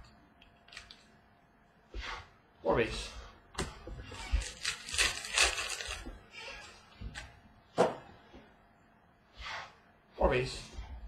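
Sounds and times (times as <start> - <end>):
card pack wrapper crinkling: 4.4 - 6.0
cards rustling and clicking: 4.4 - 6.1.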